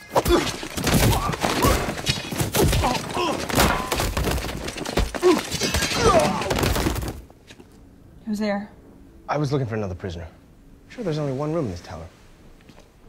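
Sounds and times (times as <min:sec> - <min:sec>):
punches and body thuds: 0:00.0 - 0:07.3
grunts and cries: 0:02.6 - 0:03.9.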